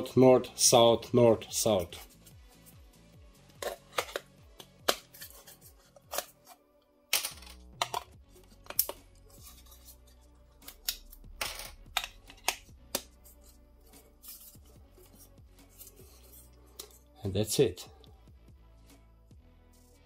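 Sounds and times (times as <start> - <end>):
faint background music: 0.0 - 20.0
magnets snapping into plastic holder: 7.1 - 9.0.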